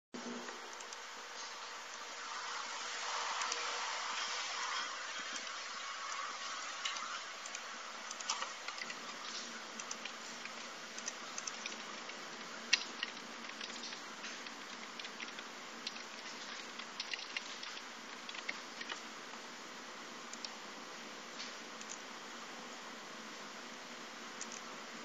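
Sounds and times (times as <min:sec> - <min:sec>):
steady hiss: 0:00.2 - 0:25.0
mouse clicks: 0:06.9 - 0:19.0, 0:20.3 - 0:20.6, 0:21.4 - 0:22.0, 0:24.4 - 0:24.6.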